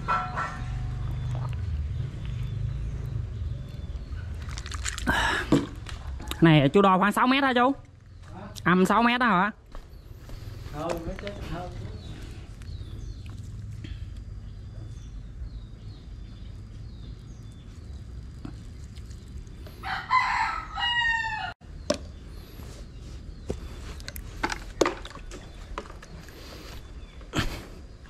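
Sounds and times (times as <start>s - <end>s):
rooster crowing: 19.8s - 21.6s.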